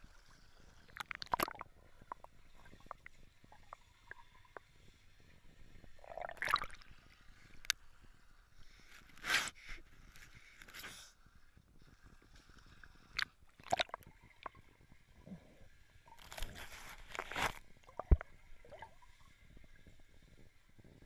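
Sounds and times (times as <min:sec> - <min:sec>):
water sloshing: 0:06.0 - 0:06.9, 0:16.1 - 0:19.1
muffled underwater clicks and knocks: 0:16.1 - 0:19.0.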